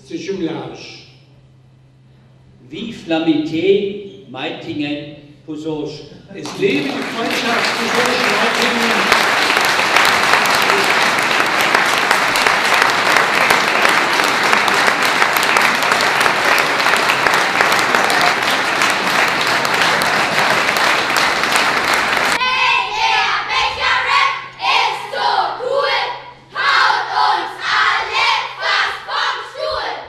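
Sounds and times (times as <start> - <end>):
audience applauding: 6.4 - 22.4.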